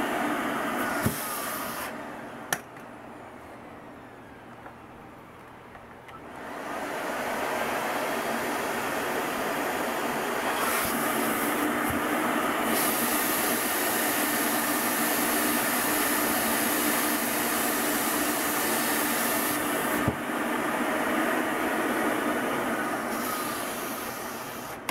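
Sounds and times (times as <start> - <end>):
dust collector suction: 0.0 - 2.1, 6.4 - 24.9
faint hum: 2.0 - 6.4.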